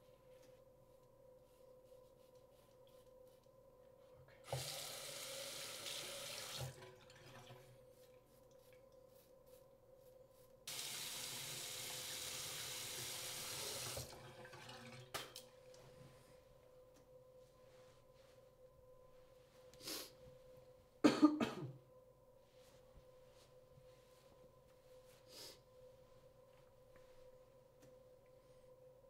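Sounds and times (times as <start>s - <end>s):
tap water splashing into sink: 4.5s - 4.8s.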